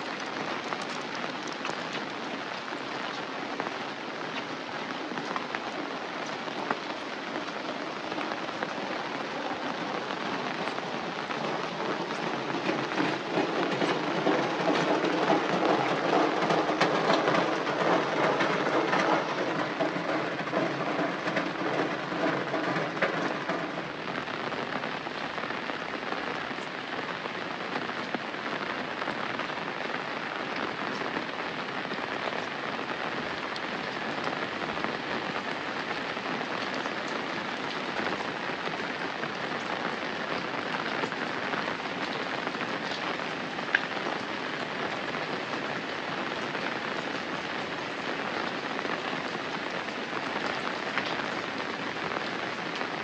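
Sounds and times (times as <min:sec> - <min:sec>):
steady rain falling: 0:00.0 - 0:53.0.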